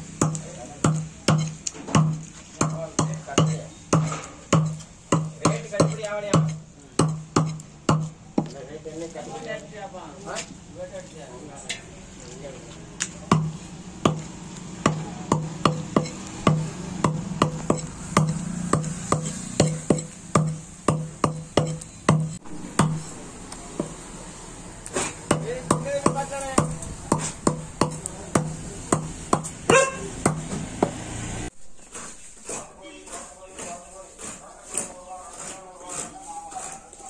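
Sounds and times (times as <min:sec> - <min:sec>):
cleaver chopping on wooden block: 0:00.2 - 0:08.6, 0:13.3 - 0:23.0, 0:24.9 - 0:31.0.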